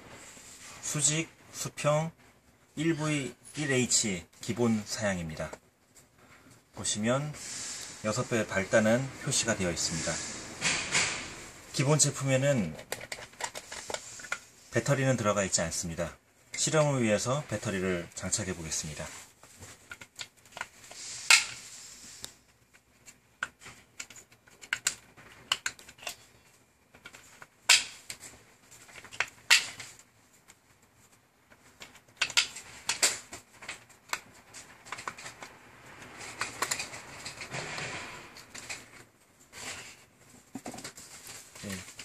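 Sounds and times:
handling and rustling: 16.4 - 42.0.

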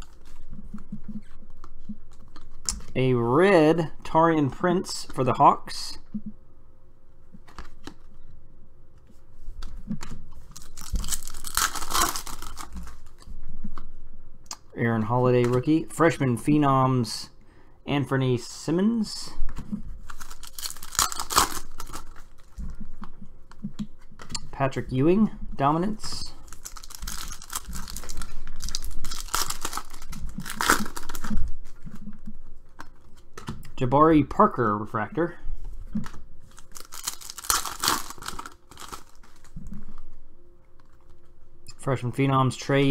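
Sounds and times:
foil card pack tearing and crinkling: 10.5 - 13.2, 20.1 - 22.6, 26.4 - 31.4, 36.5 - 39.6.

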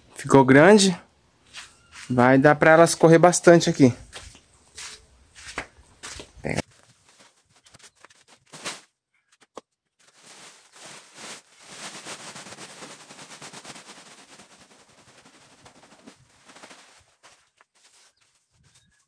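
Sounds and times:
plastic sack rustling: 6.7 - 9.0, 10.0 - 19.0
sawdust pouring onto ground: 10.2 - 17.1.

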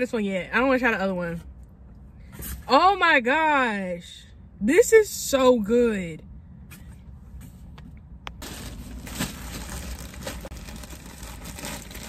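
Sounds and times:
rustling and crinkling handling noise: 6.8 - 12.0.

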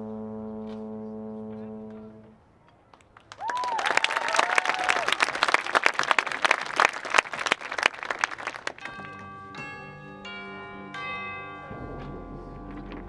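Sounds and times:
audience clapping and cheering: 3.0 - 9.2
high whoops: 3.3 - 5.3
bell-like music notes: 8.8 - 13.0.

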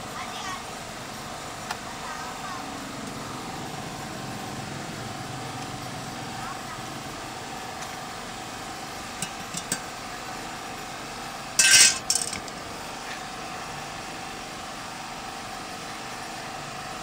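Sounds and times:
metallic clatter: 9.2 - 9.9, 11.6 - 12.6
metal rattle: 11.6 - 12.6.

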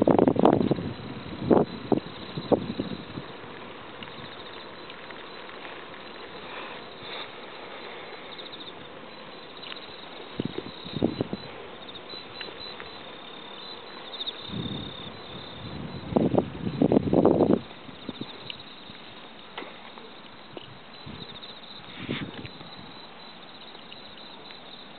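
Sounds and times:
insects chirping: 0.0 - 24.9
steady hiss: 0.0 - 24.9.

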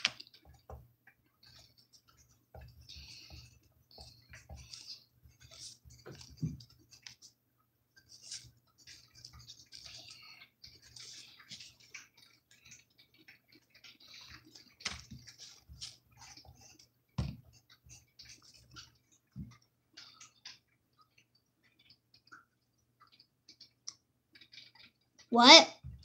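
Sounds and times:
pencil scratching on paper: 1.4 - 7.3, 8.0 - 12.8, 14.0 - 18.8.

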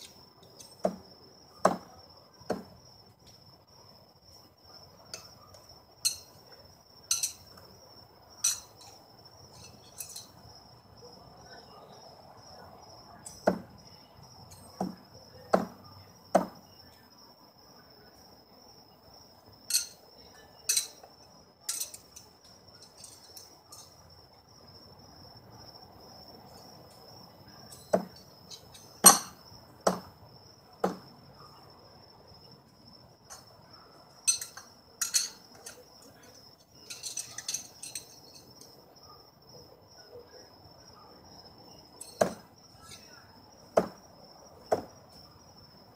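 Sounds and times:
cricket trill: 0.0 - 45.9
knives thudding into target: 29.0 - 30.1, 42.0 - 42.5.

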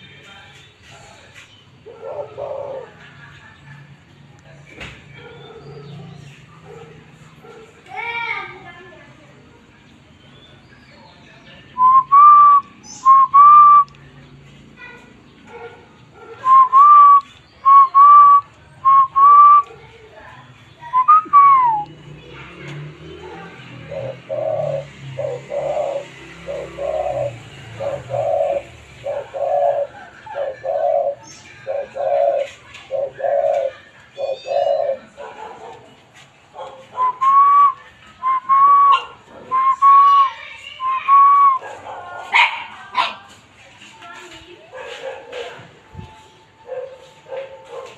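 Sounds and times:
dove cooing: 1.8 - 3.3, 23.0 - 35.6.

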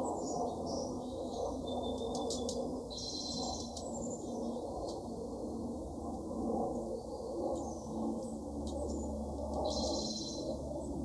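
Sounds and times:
bird trill: 0.0 - 4.6, 9.6 - 10.6
songbirds chirping: 0.0 - 6.0, 6.7 - 11.0.

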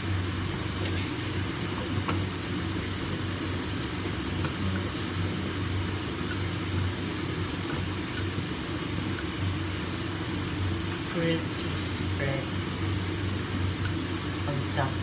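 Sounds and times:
low fan hum: 0.0 - 15.0.

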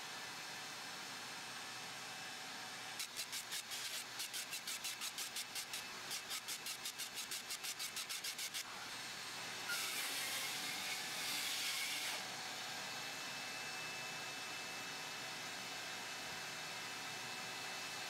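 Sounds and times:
circular saw cutting wood: 2.9 - 12.6.

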